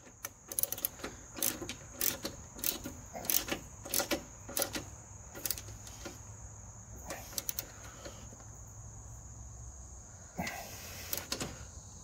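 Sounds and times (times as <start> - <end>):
ratchet wrench clicking: 0.0 - 6.2, 7.3 - 7.7.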